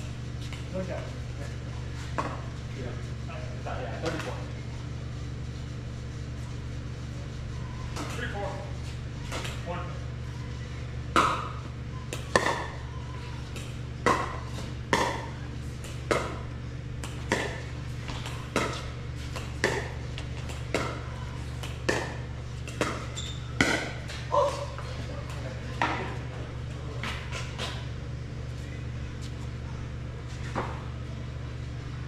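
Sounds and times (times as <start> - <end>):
steady low hum: 0.0 - 32.0
paddles hitting plastic ball: 17.0 - 24.3.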